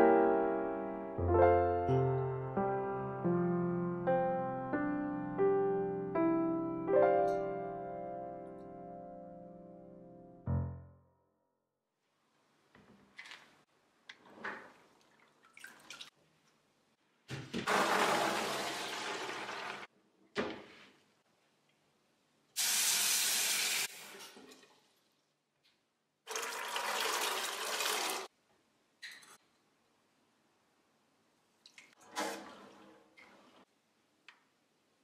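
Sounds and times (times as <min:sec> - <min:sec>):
handling splashes and knocks: 0:14.6 - 0:16.2
water running in metal sink: 0:17.7 - 0:19.9, 0:26.3 - 0:28.3.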